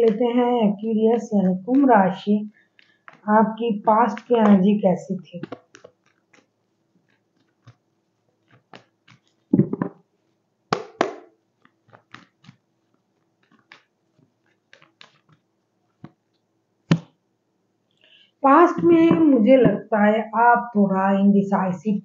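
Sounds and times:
cards riffling: 0:05.4 - 0:09.9, 0:10.7 - 0:16.2
cards shuffling: 0:05.4 - 0:10.0, 0:10.7 - 0:16.2.

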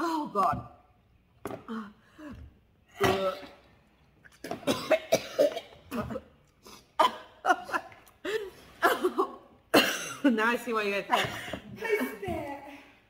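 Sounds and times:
woman coughing and gagging: 0:04.4 - 0:06.4, 0:07.0 - 0:08.0, 0:08.8 - 0:10.5.

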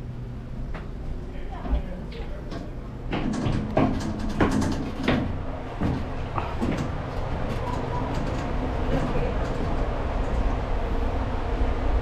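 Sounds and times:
steady low hum: 0:00.0 - 0:12.0
footsteps on metal ladder: 0:01.6 - 0:09.8.

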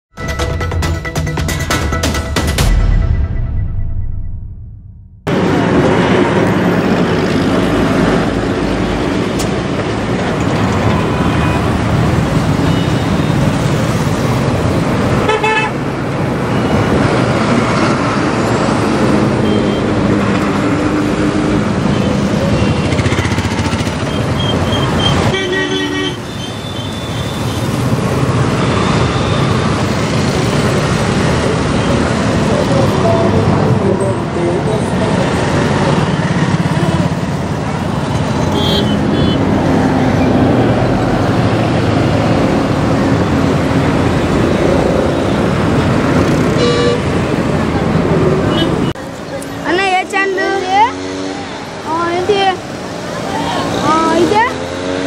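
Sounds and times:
road traffic noise: 0:05.2 - 0:55.0
vehicle horns honking: 0:10.9 - 0:11.8, 0:12.5 - 0:13.5, 0:15.2 - 0:15.8, 0:24.1 - 0:27.7, 0:38.4 - 0:39.5, 0:46.5 - 0:47.2, 0:48.5 - 0:49.0.

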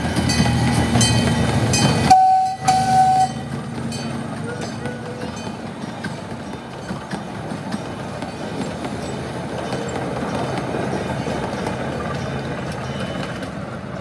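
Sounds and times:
miniature train rumbling over rails: 0:00.0 - 0:14.0.

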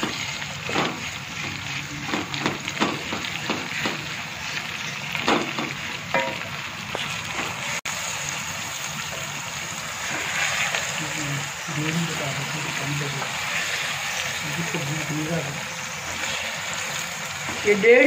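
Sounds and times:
meat sizzling in oil: 0:00.0 - 0:18.0
wooden spoon scraping pot: 0:10.0 - 0:11.0.

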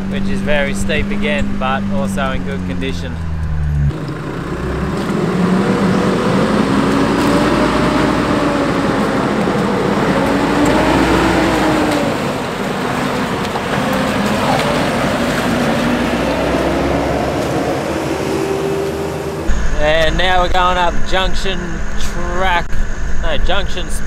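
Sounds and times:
truck engine running: 0:00.0 - 0:22.4
tyres and water splashing: 0:03.3 - 0:19.5.

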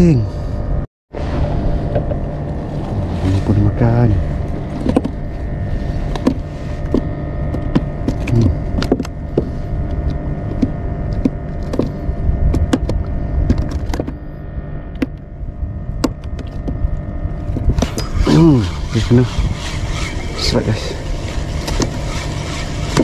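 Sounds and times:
faint hum: 0:00.0 - 0:23.0
low rumble: 0:00.0 - 0:23.0
fishing reel clicks and knocks: 0:17.7 - 0:20.5.

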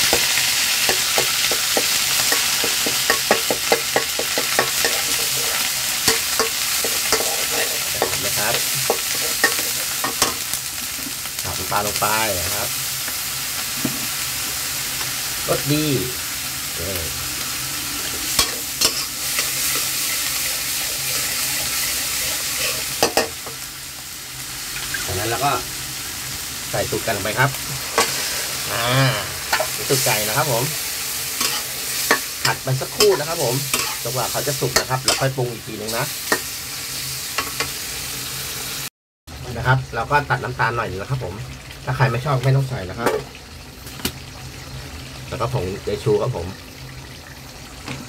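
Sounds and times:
metal spatula scraping wok: 0:00.0 - 0:10.5, 0:18.0 - 0:23.6, 0:27.1 - 0:36.5
paste sizzling in hot oil: 0:00.0 - 0:38.9.

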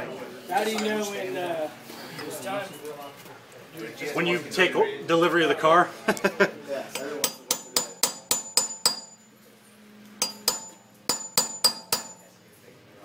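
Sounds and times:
hammer striking metal punch: 0:07.2 - 0:09.3, 0:10.2 - 0:12.3.

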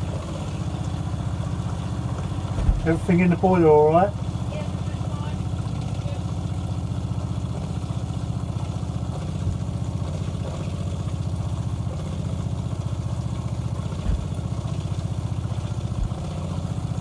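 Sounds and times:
water pump pulsing: 0:00.0 - 0:17.0
thump: 0:02.6 - 0:02.9.

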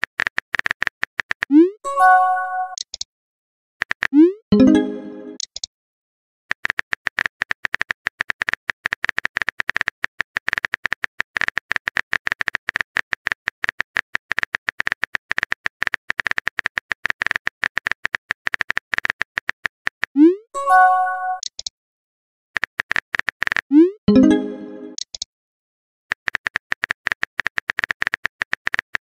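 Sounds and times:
phone keyboard typing clicks: 0:00.0 - 0:01.6, 0:02.6 - 0:03.1, 0:05.3 - 0:05.7, 0:06.5 - 0:20.2, 0:21.3 - 0:21.7, 0:22.6 - 0:23.7, 0:26.1 - 0:29.0.

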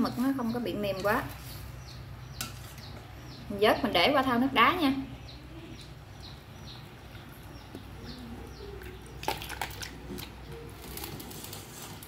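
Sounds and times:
faint bird chirps: 0:05.0 - 0:09.4.

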